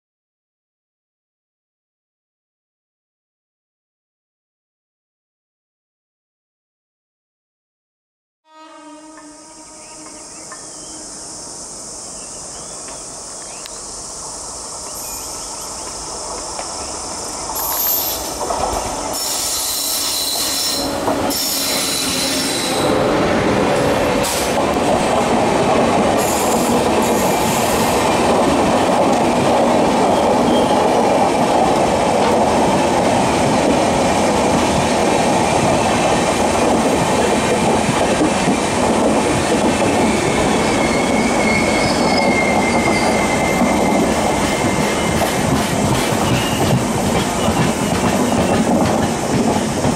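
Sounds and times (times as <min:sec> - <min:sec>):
train rolling past: 0:09.0 - 0:49.9
crickets chirping: 0:09.2 - 0:28.9, 0:39.6 - 0:48.6
wheel and brake squeals: 0:17.6 - 0:23.0, 0:30.0 - 0:31.0, 0:39.9 - 0:45.4, 0:46.2 - 0:48.7.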